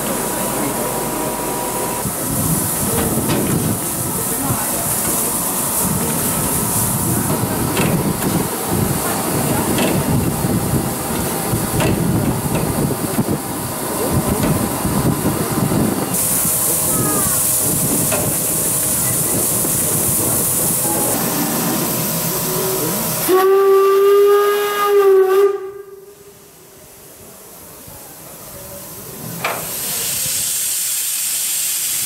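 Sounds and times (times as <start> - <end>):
steam locomotive hissing: 0.0 - 32.0
steam whistle blast: 23.2 - 26.3.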